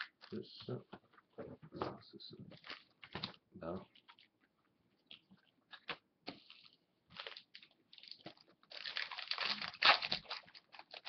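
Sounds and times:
foil wrapper crinkling: 5.8s - 11.0s.

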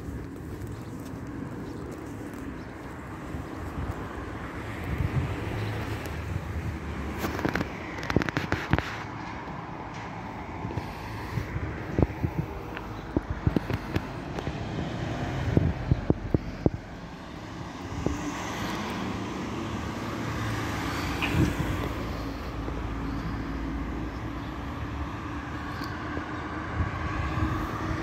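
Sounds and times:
footsteps on pavement: 0.0s - 28.0s
vehicle passing: 0.0s - 28.0s.

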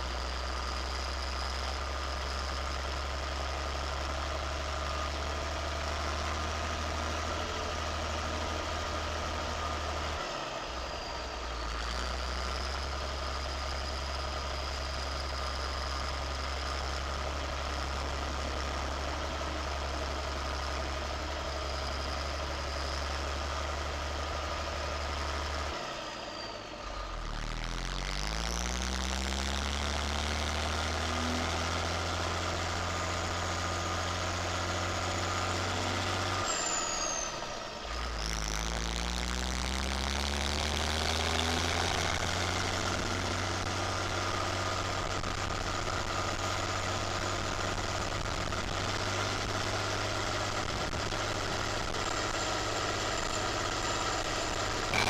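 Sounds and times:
tractor diesel engine running: 0.0s - 55.0s
high whine: 50.7s - 55.0s.

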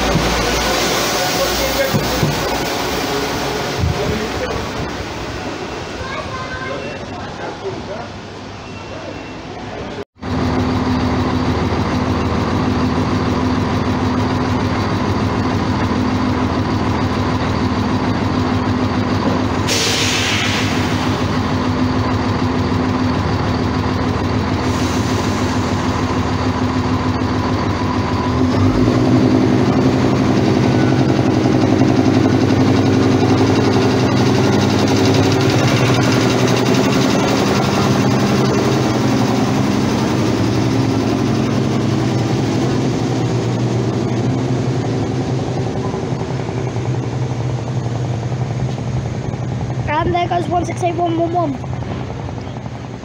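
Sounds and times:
train diesel engines running: 0.0s - 53.0s
air release hiss: 19.6s - 21.3s.

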